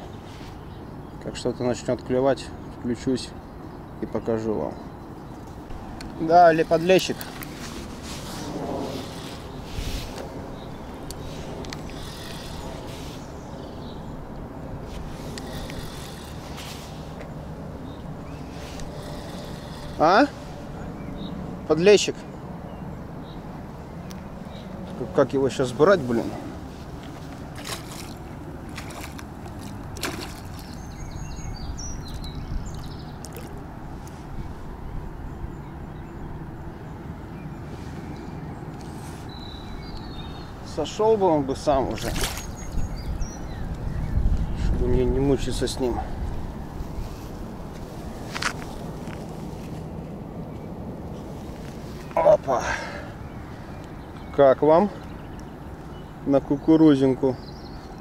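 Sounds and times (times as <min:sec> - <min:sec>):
wind on microphone: 0:07.1 - 0:20.0, 0:42.0 - 0:49.6
fishing reel whirring: 0:11.1 - 0:13.0, 0:15.3 - 0:16.6, 0:18.5 - 0:20.2
fish splashing in water: 0:27.3 - 0:31.3, 0:32.1 - 0:33.7.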